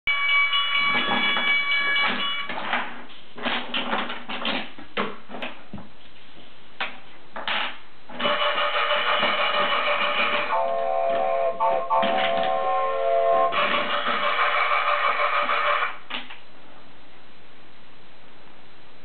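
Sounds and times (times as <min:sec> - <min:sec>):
toy pieces knocking on wooden track: 0:08.2 - 0:10.5, 0:13.5 - 0:15.9
electronic tune: 0:08.3 - 0:15.9.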